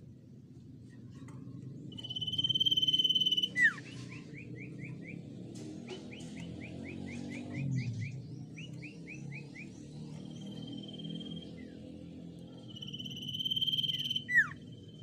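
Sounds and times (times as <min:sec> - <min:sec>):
bird singing whistles: 0:01.9 - 0:05.3, 0:06.1 - 0:11.7, 0:12.6 - 0:15.0.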